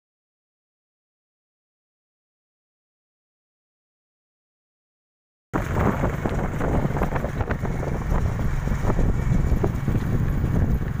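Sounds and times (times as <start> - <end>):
rough low rumble: 5.6 - 11.0
wind buffeting microphone: 5.6 - 11.0.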